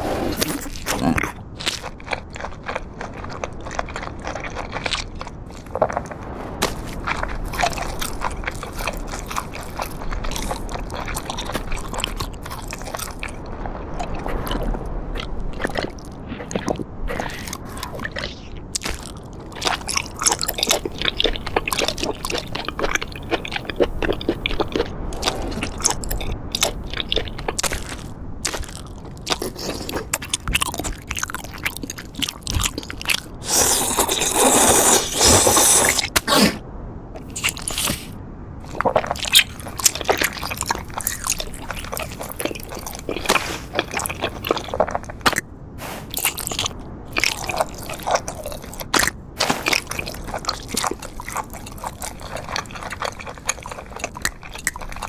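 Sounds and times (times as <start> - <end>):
crunching and chewing: 0.0 - 36.6, 37.2 - 55.0
loud slurp: 33.4 - 36.6.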